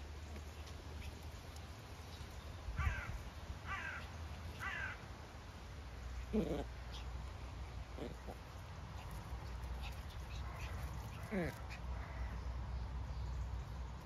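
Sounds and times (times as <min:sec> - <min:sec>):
crow cawing: 0:02.8 - 0:04.0, 0:04.6 - 0:05.0.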